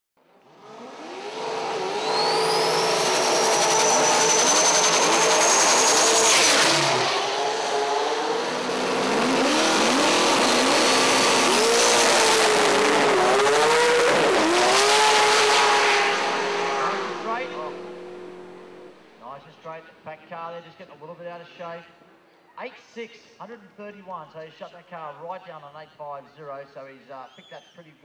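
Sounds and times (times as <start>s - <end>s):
car engine revving hard: 0.4s - 19.0s
high turbo whistle: 1.2s - 8.2s, 13.3s - 19.1s.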